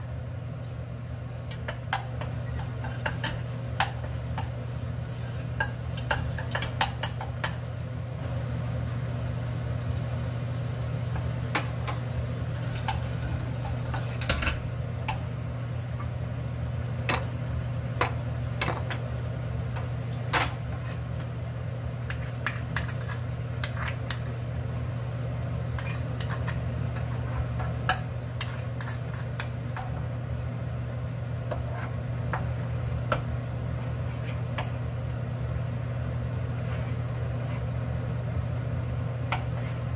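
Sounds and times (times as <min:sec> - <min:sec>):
sauce sizzling and bubbling: 0:00.0 - 0:39.9
steady low hum: 0:00.0 - 0:39.9
wooden spatula tapping pan: 0:01.5 - 0:04.6, 0:05.6 - 0:07.6.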